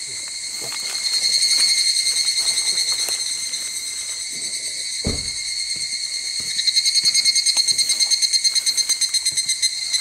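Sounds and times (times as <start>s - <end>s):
high-pitched insect calling: 0.0s - 10.0s
low thump: 5.0s - 5.4s.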